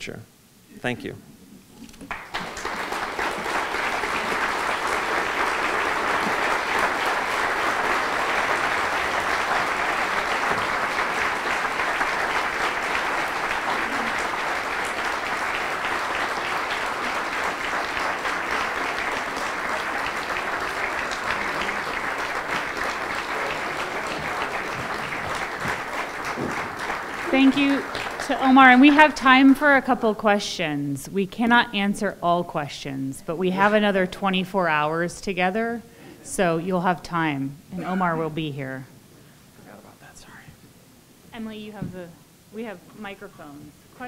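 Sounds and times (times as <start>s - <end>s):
audience applauding: 2.0s - 29.9s, 37.8s - 38.5s.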